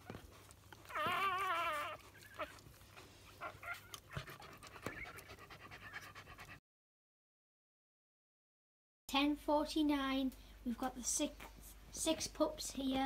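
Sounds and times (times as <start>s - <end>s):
puppies squealing: 0.0s - 6.1s.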